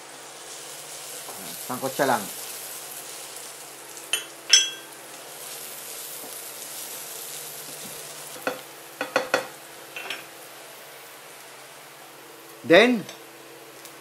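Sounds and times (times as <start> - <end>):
onion and garlic sizzling in oil: 0.0 - 14.0
spatula clacking on a pan: 8.4 - 9.5.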